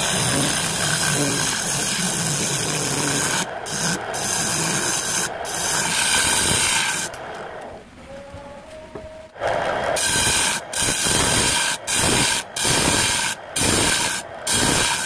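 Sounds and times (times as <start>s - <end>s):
lathe gouge scraping wood: 0.0s - 7.4s, 9.6s - 15.0s.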